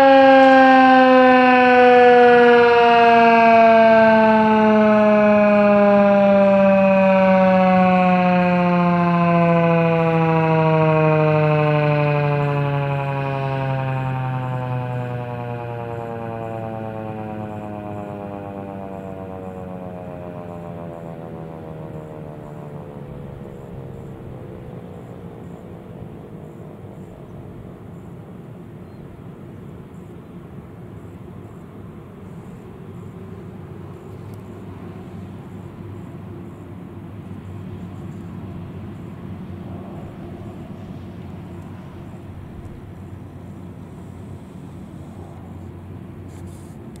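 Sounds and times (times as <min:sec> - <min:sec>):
siren winding down: 0:00.0 - 0:28.1, 0:37.8 - 0:45.8
vehicle engine idling hum: 0:02.1 - 0:47.0
low steady rumble: 0:17.5 - 0:47.0.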